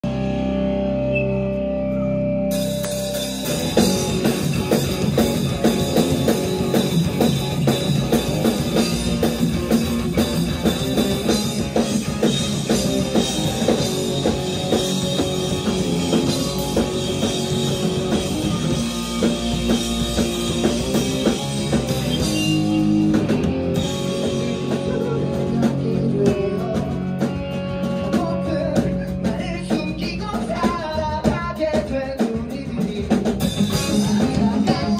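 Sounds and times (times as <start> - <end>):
bass guitar: 0.0 - 34.9
drum kit: 0.0 - 34.9
electric guitars: 0.0 - 34.9.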